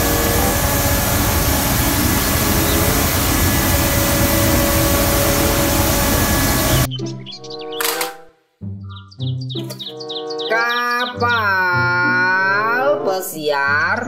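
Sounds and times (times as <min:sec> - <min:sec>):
street sweeper engine and fan rushing: 0:00.0 - 0:06.9.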